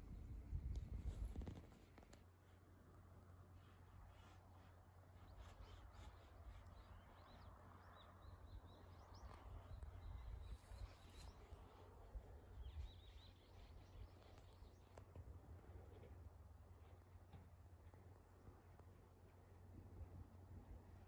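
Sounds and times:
wind rumble on microphone: 0:00.0 - 0:02.2, 0:08.5 - 0:16.1.

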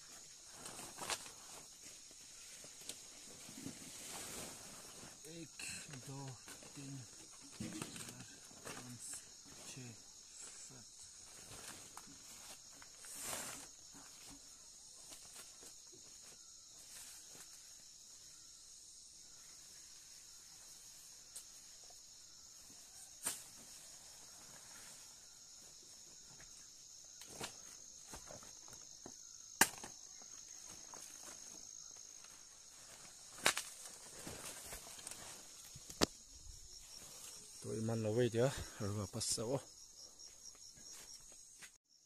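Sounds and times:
leaves rustling: 0:00.0 - 0:17.8, 0:22.5 - 0:28.9, 0:30.3 - 0:38.0
high-pitched insect chorus: 0:00.0 - 0:42.0
leaves snapping and crackling: 0:33.3 - 0:36.2.

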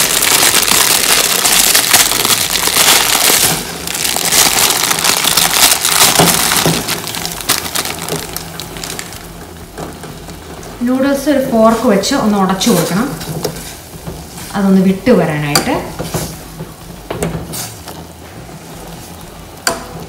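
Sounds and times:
plastic packet crinkling: 0:00.0 - 0:09.3.

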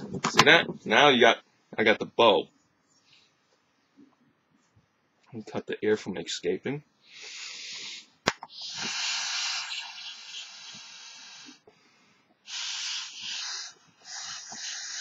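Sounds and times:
breaths blown into balloon: 0:07.1 - 0:11.7, 0:12.4 - 0:15.0.

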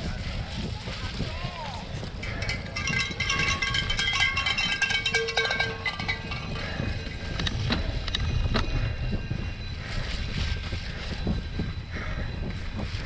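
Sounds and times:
wind rumbling on microphone: 0:00.0 - 0:13.0
bike rattling and clicking: 0:01.8 - 0:13.0
cowbells clanging: 0:02.1 - 0:09.4.

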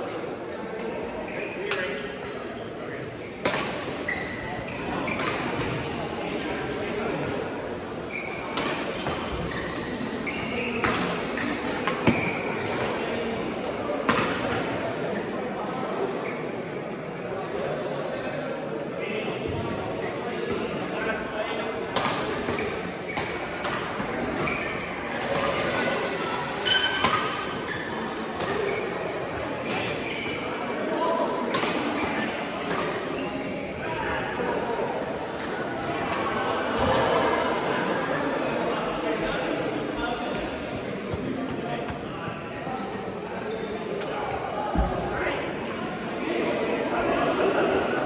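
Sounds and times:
shoes squeaking on court floor: 0:03.5 - 0:06.6, 0:08.1 - 0:12.9, 0:22.4 - 0:26.0, 0:26.6 - 0:29.0, 0:29.6 - 0:30.6.

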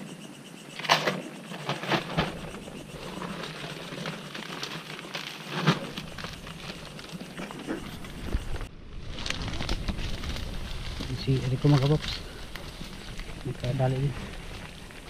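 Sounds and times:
rustling in dry leaves: 0:01.6 - 0:15.0.

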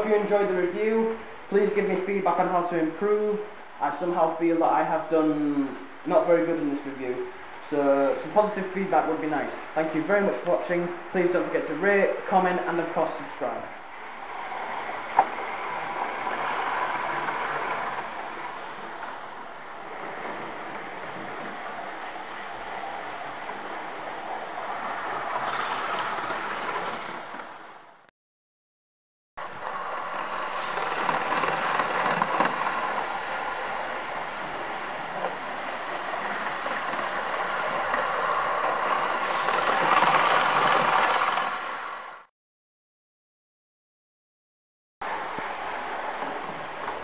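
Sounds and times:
model train passing: 0:11.5 - 0:27.9, 0:29.5 - 0:42.2.

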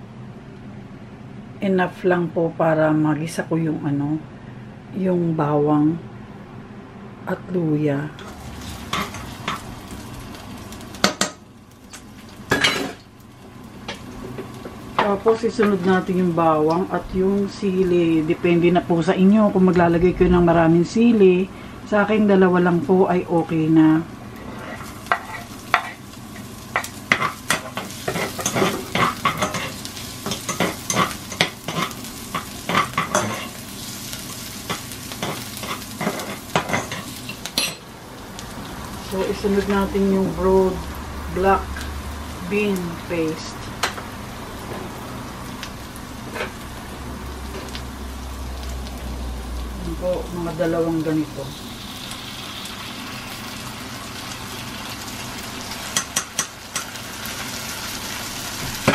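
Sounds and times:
food sizzling in hot oil: 0:08.2 - 0:18.4, 0:23.7 - 0:58.9
metal spoon scraping a pan: 0:27.1 - 0:33.6.

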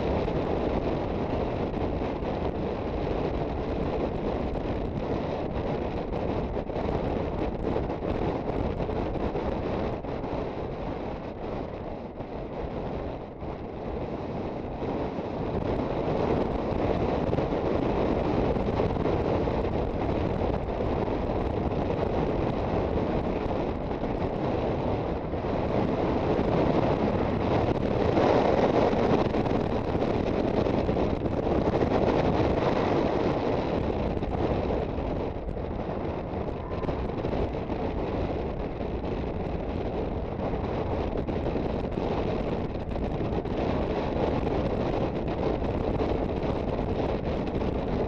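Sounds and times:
scooter engine and road noise: 0:00.0 - 0:48.0
wind rushing over microphone: 0:00.0 - 0:48.0.

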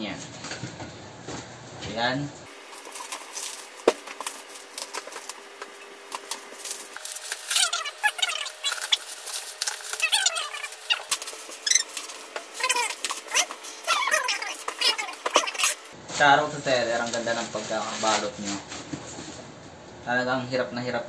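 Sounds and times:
packaging crinkling and tearing: 0:02.5 - 0:15.8
animal crying: 0:07.4 - 0:15.9.

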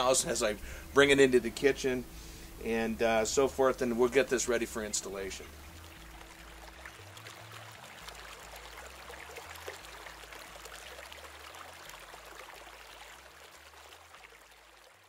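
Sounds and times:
water trickling onto soil: 0:05.0 - 0:15.0.

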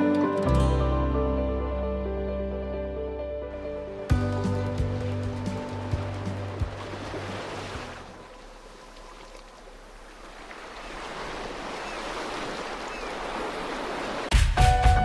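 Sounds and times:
music track: 0:00.0 - 0:07.3, 0:14.3 - 0:15.0
waves breaking on beach: 0:04.2 - 0:14.3.

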